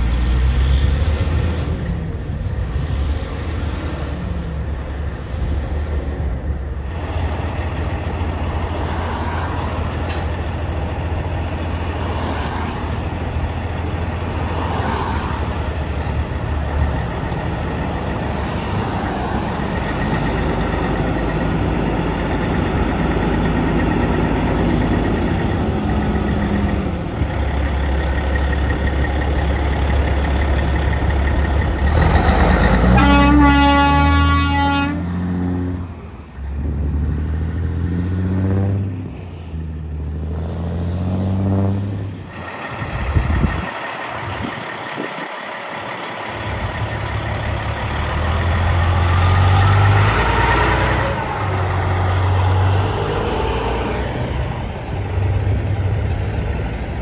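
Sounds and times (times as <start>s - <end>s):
diesel truck revving: 0.0s - 57.0s
diesel trucks running: 0.0s - 57.0s
truck shifting through gears: 6.9s - 57.0s
air horn blast: 32.8s - 35.1s.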